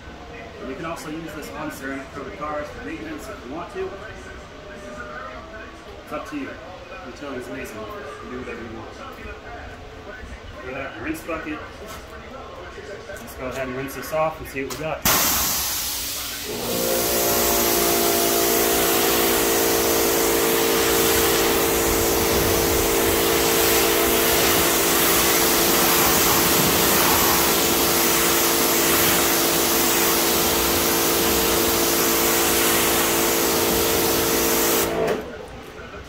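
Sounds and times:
pressure washer spray hissing: 15.0 - 35.1
washer motor and pump hum: 15.1 - 35.4.

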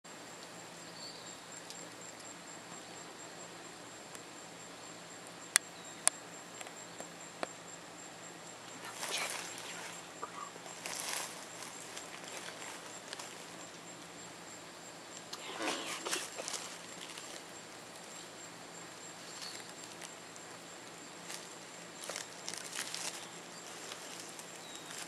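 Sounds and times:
faint ticks: 1.6 - 2.9, 5.5 - 7.6
dry rustling: 8.8 - 14.2, 15.2 - 18.4, 19.1 - 25.0.

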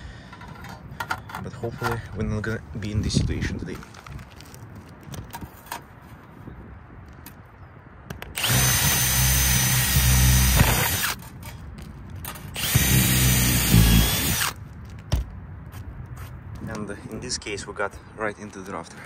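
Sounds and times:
cordless drill whine: 8.4 - 11.2, 12.6 - 14.6.

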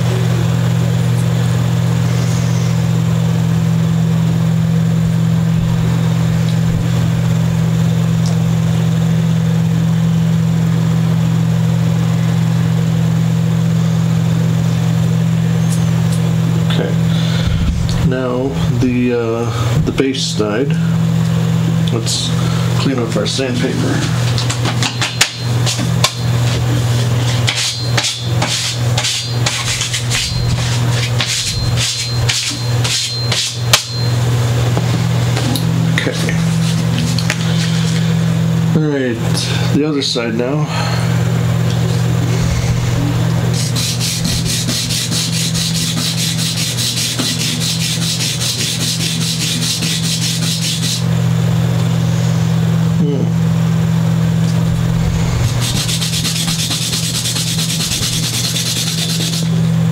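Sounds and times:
steady low hum: 0.0 - 59.9
sandpaper rubbing: 25.7 - 33.6, 36.2 - 38.0, 43.5 - 51.1, 55.4 - 59.6.

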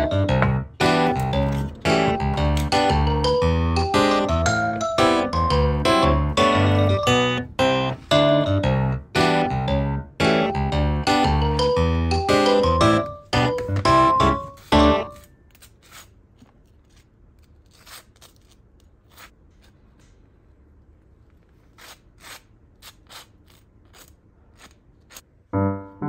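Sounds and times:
piano music: 0.0 - 15.3, 25.4 - 26.0
knife scraping toasted bread: 21.7 - 25.2.

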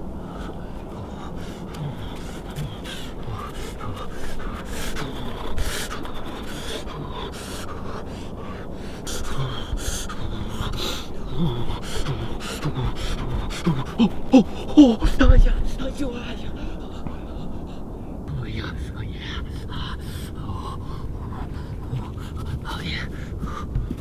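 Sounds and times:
man panting and gasping: 0.1 - 24.0
man grunting: 9.3 - 16.8.

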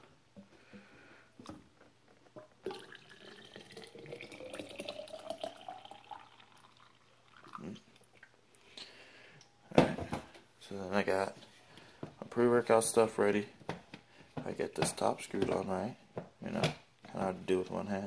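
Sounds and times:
water pouring into a bottle: 2.6 - 8.4.

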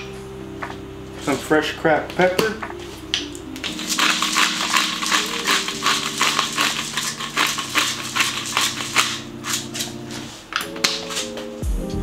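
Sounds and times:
pepper mill grinding: 3.6 - 11.4.

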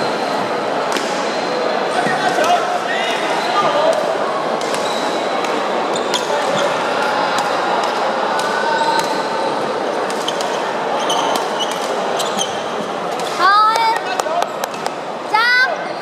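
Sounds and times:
echoing din of play: 0.0 - 16.0
shoes squeaking on wooden floor: 10.2 - 13.0.

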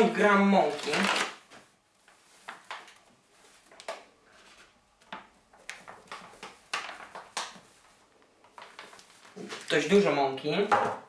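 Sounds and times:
paper bag crinkling: 0.6 - 1.5, 8.6 - 9.9.

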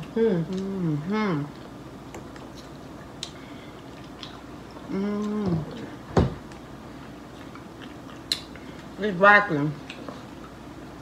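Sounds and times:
woman humming mmm: 4.9 - 5.9.

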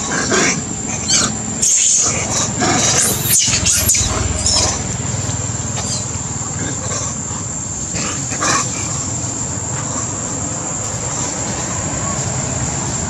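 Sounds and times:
macaques squealing: 1.0 - 4.9
steady high background tone: 2.4 - 6.4.

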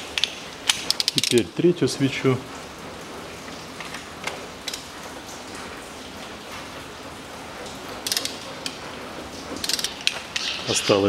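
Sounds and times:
rain hissing: 0.0 - 11.0
ratchet wrench clicking: 0.9 - 1.4, 8.0 - 8.4, 9.6 - 10.2.

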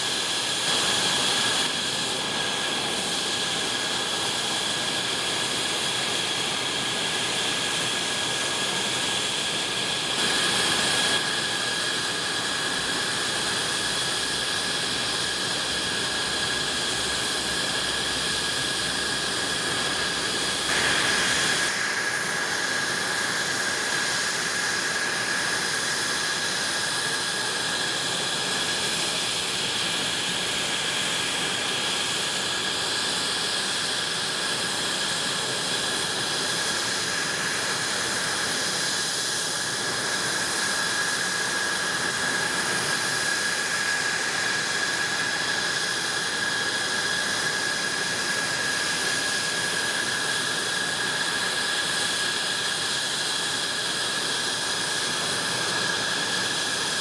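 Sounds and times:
jet engine idling whine: 0.0 - 57.0
rushing hiss: 20.4 - 22.2.

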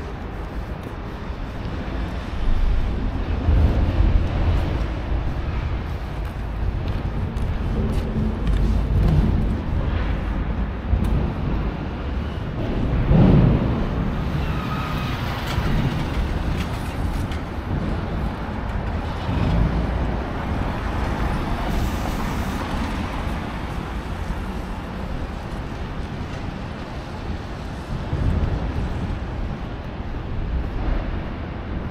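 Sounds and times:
city road traffic rumble: 0.0 - 31.9.

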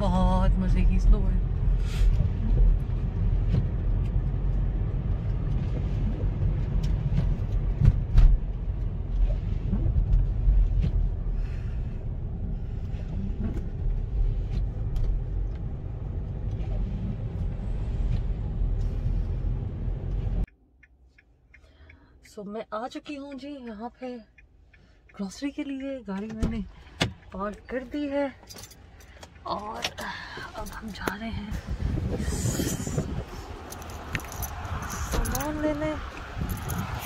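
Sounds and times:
car engine and tyre rumble: 0.0 - 37.0.

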